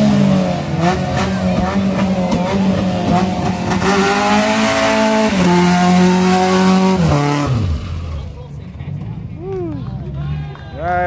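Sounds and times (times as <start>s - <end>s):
car engine at high revs: 0.0s - 8.3s.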